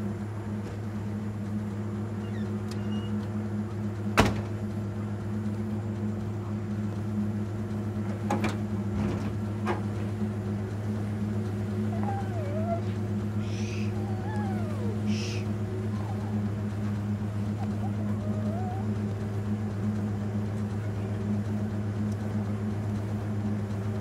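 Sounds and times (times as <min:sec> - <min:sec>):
truck engine idling: 0:00.0 - 0:24.0.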